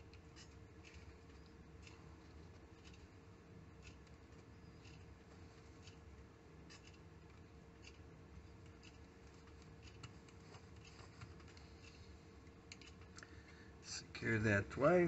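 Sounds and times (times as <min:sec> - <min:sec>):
faint room hum: 0:00.0 - 0:15.0
soft faint ticks: 0:08.6 - 0:12.0.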